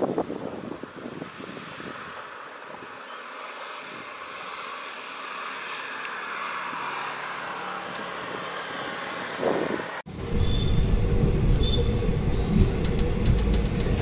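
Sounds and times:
train wheels squealing: 0.0 - 2.0, 10.4 - 10.8, 11.5 - 13.0
train running: 10.1 - 14.0.

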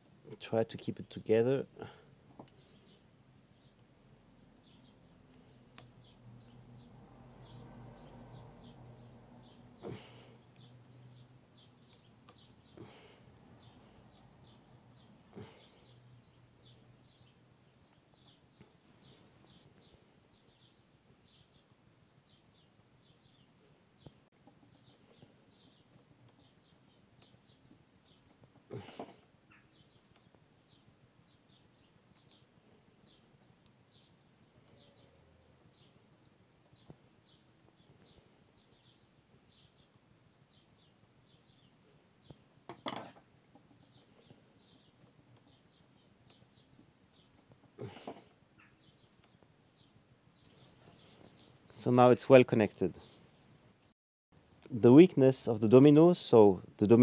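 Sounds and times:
faint small birds chirping: 0.0 - 57.0
faint high bird chirps: 13.6 - 33.3, 43.7 - 51.6
soft clicks: 32.1 - 32.5.

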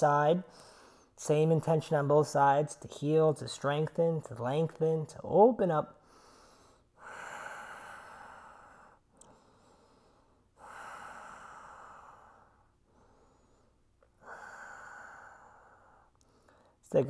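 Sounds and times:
man breathing deeply: 6.0 - 16.8.

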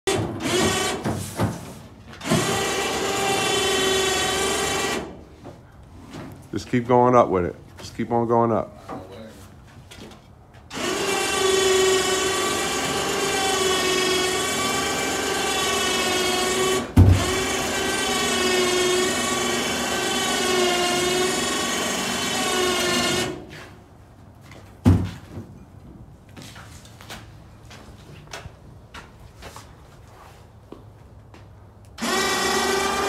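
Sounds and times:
electric winch motor whining: 2.2 - 5.1, 10.7 - 23.4, 32.0 - 33.0
thump: 24.8 - 25.4.

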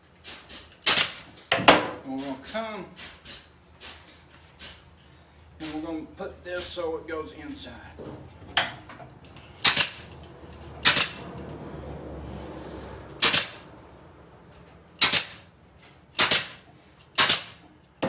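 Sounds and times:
pneumatic ring gun snapping: 0.2 - 1.3, 4.6 - 4.8, 9.6 - 10.2, 10.8 - 11.2, 13.2 - 13.6, 15.0 - 15.5, 16.2 - 17.7.

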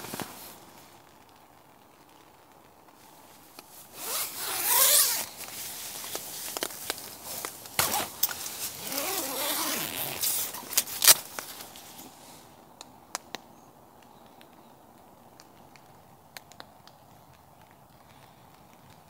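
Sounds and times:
rustling and clicks of handling: 2.9 - 19.0
zipper being pulled: 4.0 - 5.3, 7.8 - 11.2.

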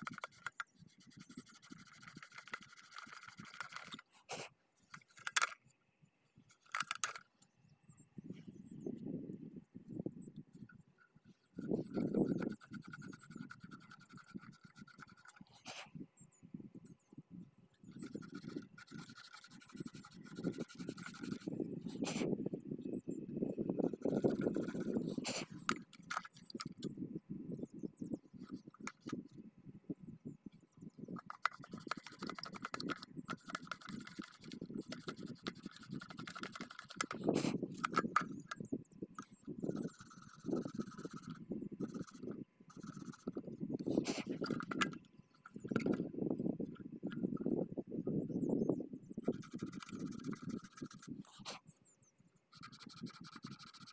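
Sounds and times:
scratching and rubbing on metal: 0.0 - 5.7, 6.4 - 7.3, 10.2 - 15.9, 17.7 - 22.8, 23.5 - 26.9, 28.3 - 29.4, 31.0 - 47.6, 49.2 - 51.6, 52.5 - 53.9.

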